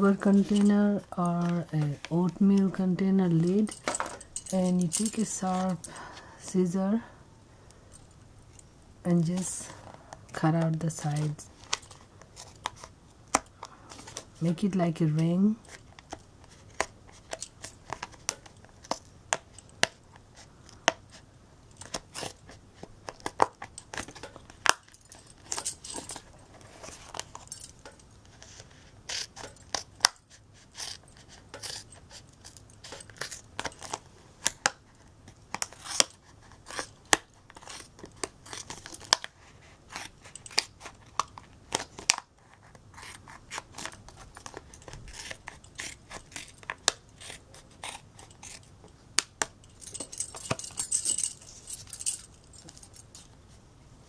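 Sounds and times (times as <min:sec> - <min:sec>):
scissors cutting plastic: 0:20.6 - 0:26.2, 0:26.8 - 0:51.6.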